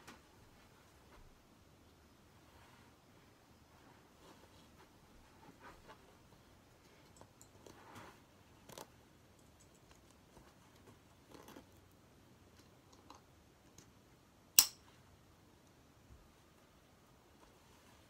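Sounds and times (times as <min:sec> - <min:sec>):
fabric rustling: 0:02.3 - 0:06.6.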